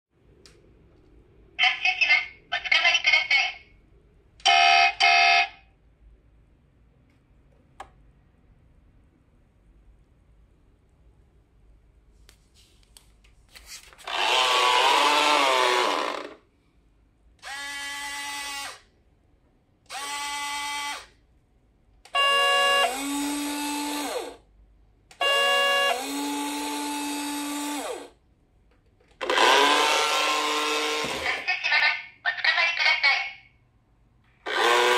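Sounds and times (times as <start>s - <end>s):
toy motor and gears whining: 14.0s - 16.4s, 17.4s - 18.9s, 19.9s - 21.1s, 22.2s - 24.4s, 25.2s - 28.1s, 29.2s - 31.4s, 34.5s - 34.9s.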